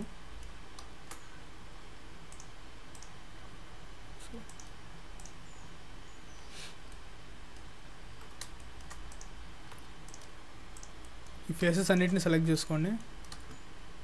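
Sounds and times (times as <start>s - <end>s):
steady low hum: 0.0s - 14.0s
computer mouse clicks: 0.4s - 1.3s, 2.3s - 3.2s, 4.4s - 5.4s, 6.9s - 12.3s, 12.9s - 13.6s.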